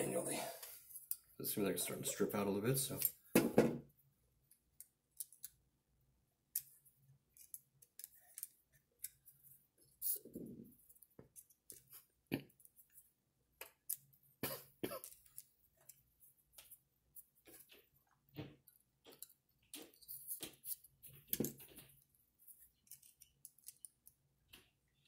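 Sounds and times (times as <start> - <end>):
light clicks and taps of parts: 4.4 - 5.6, 6.5 - 9.4, 15.0 - 24.8.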